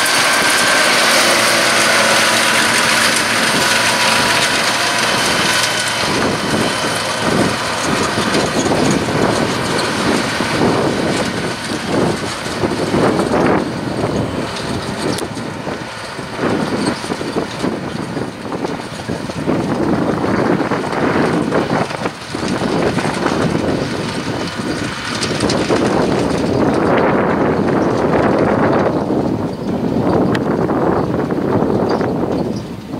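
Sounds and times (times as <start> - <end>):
loader wagon rotor chopping grass: 0.0 - 32.9
tractor diesel engine under load: 0.0 - 32.9.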